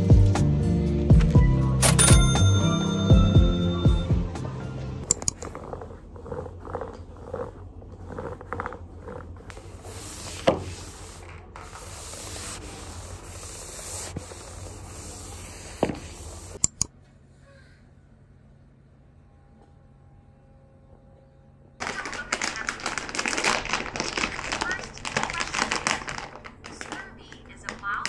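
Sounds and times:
mop swishing on wooden floor: 6.7 - 16.6.

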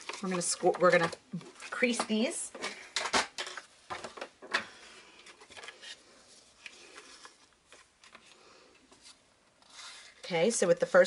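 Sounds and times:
paper strips rustling and tapping: 0.0 - 6.0.

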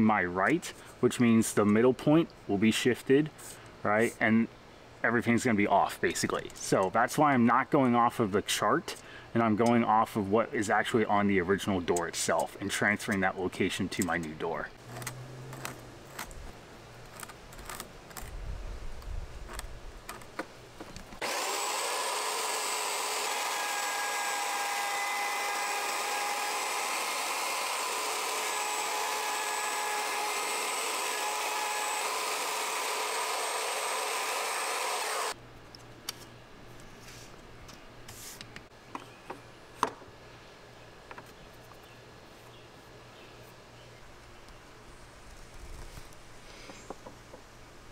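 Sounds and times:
router cutting wood: 21.2 - 35.4.

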